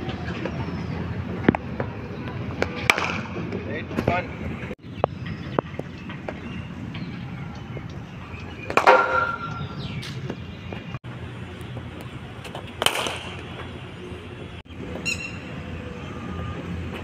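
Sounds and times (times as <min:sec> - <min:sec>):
outdoor background noise: 0:00.0 - 0:17.0
cricket bat hitting ball: 0:08.7 - 0:09.6.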